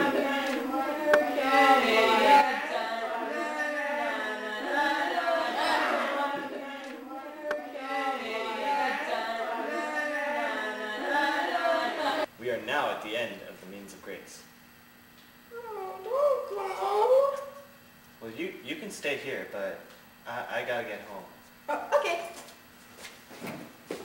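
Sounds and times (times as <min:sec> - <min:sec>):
voices singing held notes: 0:00.0 - 0:12.3.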